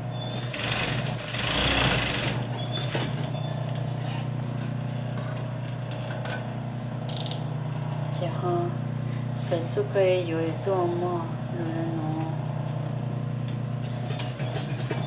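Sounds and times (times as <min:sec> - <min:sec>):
industrial sewing machine humming: 0:00.0 - 0:05.6, 0:10.8 - 0:15.0.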